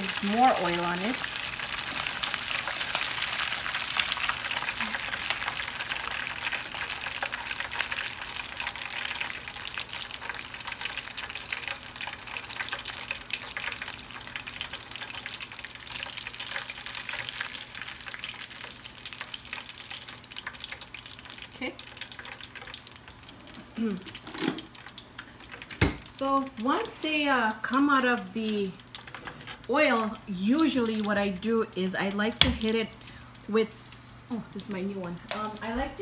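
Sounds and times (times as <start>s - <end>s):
oil sizzling and crackling: 0.0s - 36.0s.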